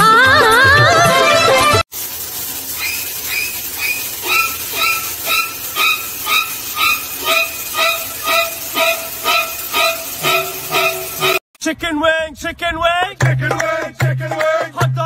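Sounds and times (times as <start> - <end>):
shower water spraying: 1.7 - 11.4.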